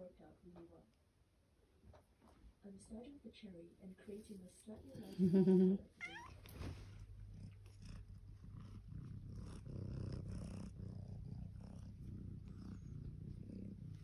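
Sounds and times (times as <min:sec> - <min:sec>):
cat purring: 0:04.8 - 0:14.0.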